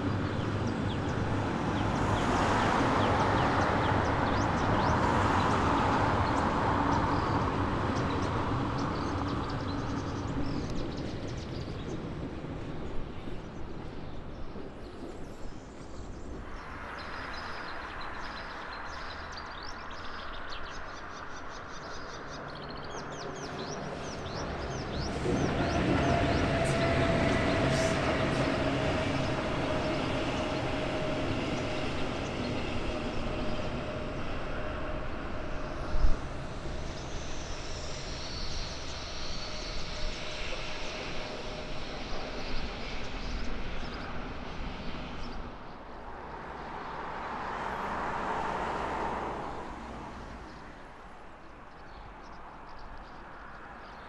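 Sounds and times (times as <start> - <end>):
birds chirping: 0.0 - 47.9
train wheels rolling on rails: 23.0 - 48.6
locomotive whine: 23.3 - 48.7.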